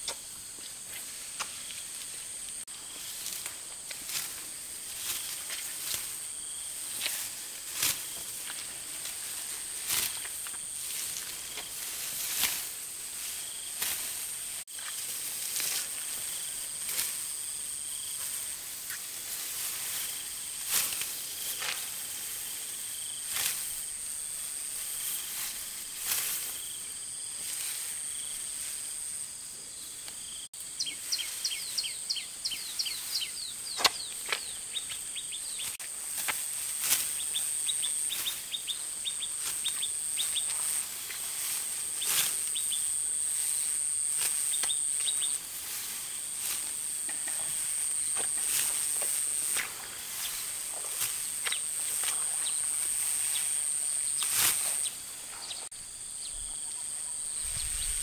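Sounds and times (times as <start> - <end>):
high insect drone: 0.0 - 58.0
bird chirping: 30.8 - 35.8.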